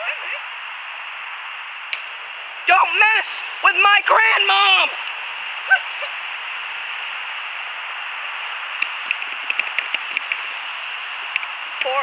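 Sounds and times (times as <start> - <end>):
sharp clicks and crackles: 8.8 - 10.5, 11.3 - 12.0.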